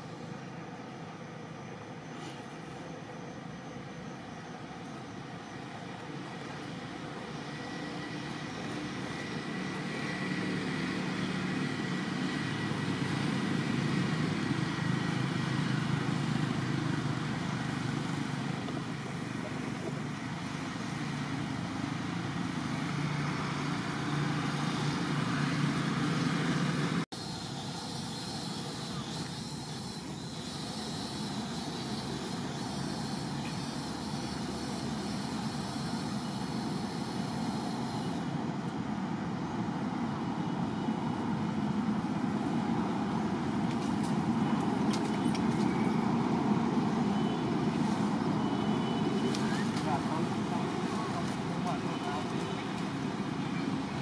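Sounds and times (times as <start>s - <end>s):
distant engine drone: 0.0s - 54.0s.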